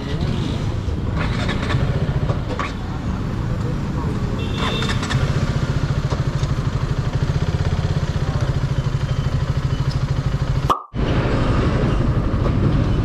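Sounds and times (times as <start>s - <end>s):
motorcycle engine idling: 3.1s - 10.7s.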